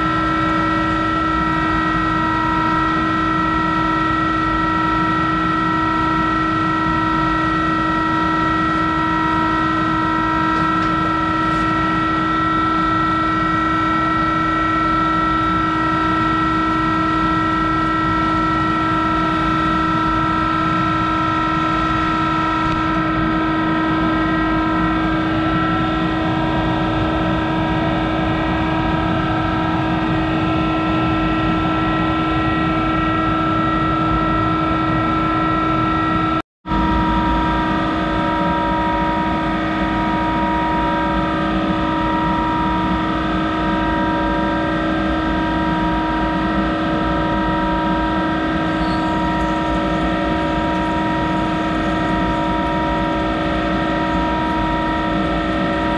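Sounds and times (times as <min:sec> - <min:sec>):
lathe machine whine: 0:00.0 - 0:55.9
knurling tool rolling metal: 0:48.5 - 0:55.9.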